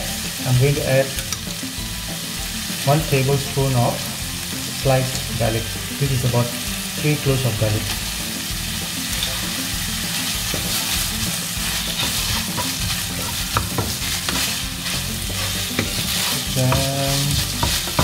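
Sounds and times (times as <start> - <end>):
food sizzling in a pan: 0.0 - 18.0
wooden spatula scraping a pan: 10.1 - 18.0
spatula knocking against pan: 12.0 - 14.5.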